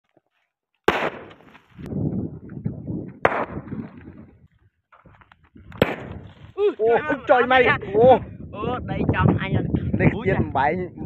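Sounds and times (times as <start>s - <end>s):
firecracker bangs: 0.9s - 1.6s, 3.2s - 3.8s, 5.8s - 6.4s.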